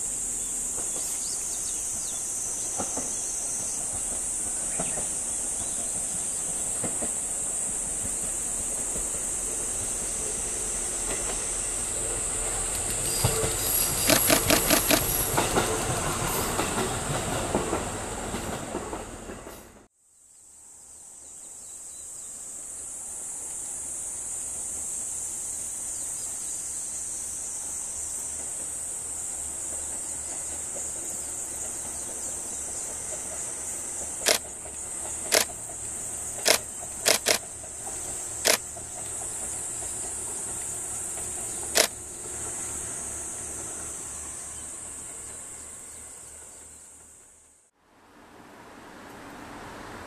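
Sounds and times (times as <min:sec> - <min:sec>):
insects droning: 0:00.0 - 0:19.4, 0:20.0 - 0:47.7
sharp clicks: 0:14.0 - 0:15.1, 0:34.2 - 0:34.4, 0:36.4 - 0:37.4.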